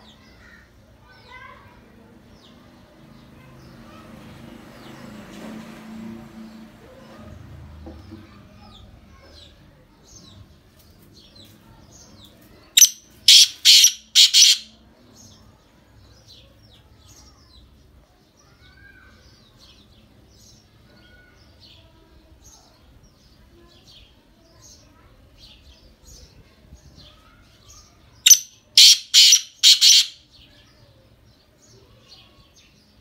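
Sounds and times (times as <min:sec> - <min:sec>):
small birds chirping: 0:00.0 - 0:05.2, 0:06.4 - 0:33.0
francolin harsh grating calls: 0:12.8 - 0:14.7, 0:28.3 - 0:30.2.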